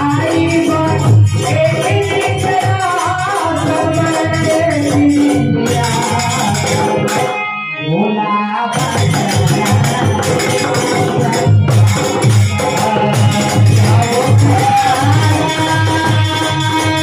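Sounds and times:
rattling hand percussion: 0.0 - 7.4, 8.7 - 17.0
dholak drum beating: 0.0 - 7.5, 8.7 - 17.0
harmonium: 0.0 - 17.0.

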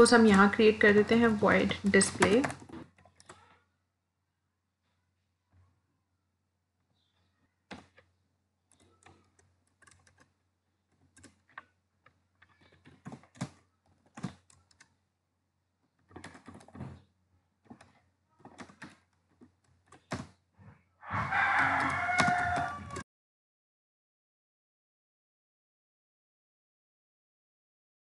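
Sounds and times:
computer keyboard typing: 1.2 - 3.5, 8.7 - 15.0, 16.0 - 16.8, 17.6 - 20.4, 21.3 - 23.0.

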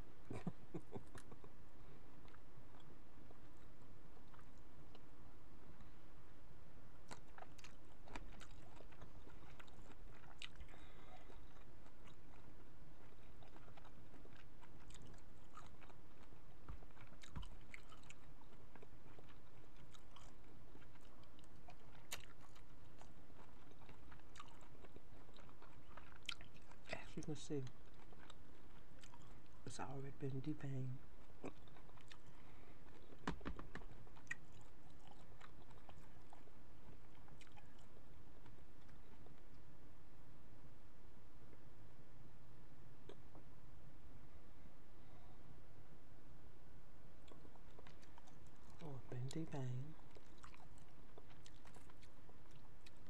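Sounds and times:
person chewing shrimp: 2.2 - 5.1, 7.0 - 29.8, 30.4 - 39.6, 47.2 - 53.0.

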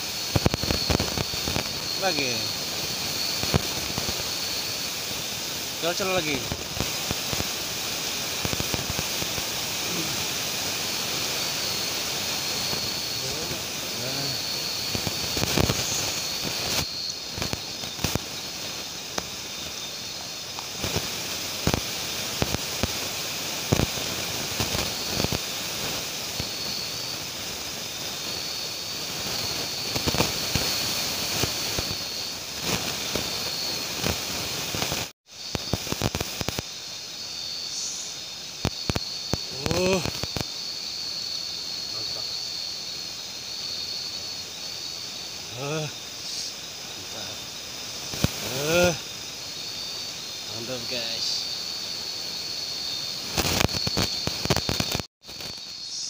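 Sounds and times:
high insect trill: 0.0 - 56.0
campfire crackling and snapping: 0.3 - 26.6, 28.9 - 36.7, 38.6 - 40.6, 48.0 - 49.0, 53.2 - 55.6
person's voice: 5.8 - 6.6, 9.8 - 10.2, 13.2 - 14.4, 39.5 - 40.1, 48.4 - 49.0.

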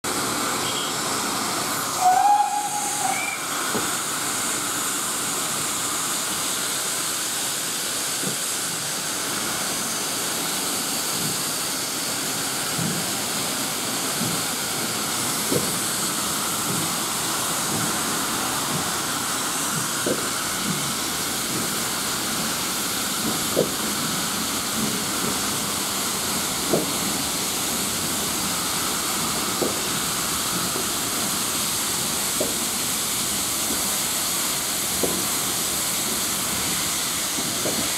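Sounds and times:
steam locomotive hissing: 0.1 - 37.9
train whistle: 1.9 - 3.6.

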